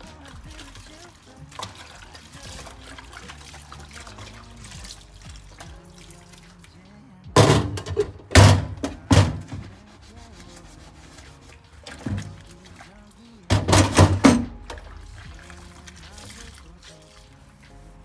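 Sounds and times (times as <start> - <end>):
water sloshing: 0.0 - 6.8, 7.4 - 18.0
soft background music: 0.0 - 18.0
dish knocking on steel drainboard: 7.4 - 9.6, 13.5 - 14.5.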